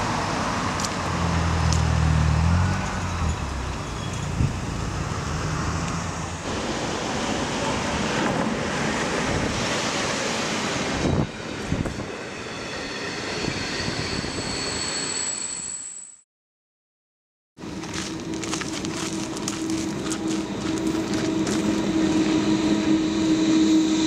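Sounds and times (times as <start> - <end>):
street traffic noise: 0.0 - 12.1, 17.6 - 24.0
train rumble: 0.0 - 14.6, 17.6 - 24.0
thin high whine: 18.2 - 24.0.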